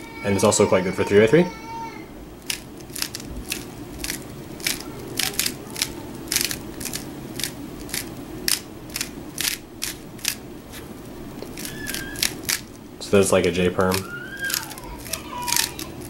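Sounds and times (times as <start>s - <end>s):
puzzle cube plastic clicks: 2.4s - 10.4s, 11.4s - 12.7s.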